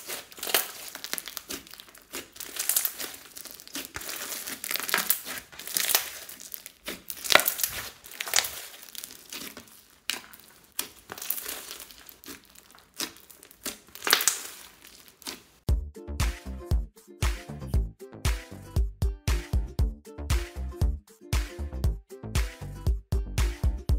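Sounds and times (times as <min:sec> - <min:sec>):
slime squishing and crackling: 0:00.0 - 0:15.7
electronic music with beat: 0:15.7 - 0:23.9.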